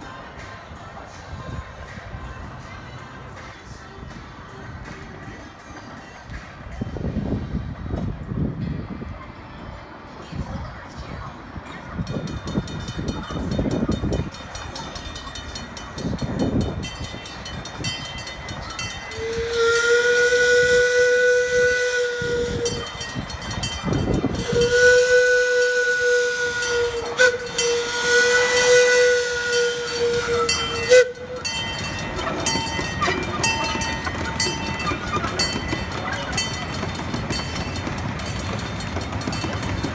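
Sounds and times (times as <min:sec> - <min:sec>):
train running rumble: 0:00.0 - 0:39.9
steam whistle blasts: 0:19.1 - 0:23.0, 0:24.3 - 0:31.4.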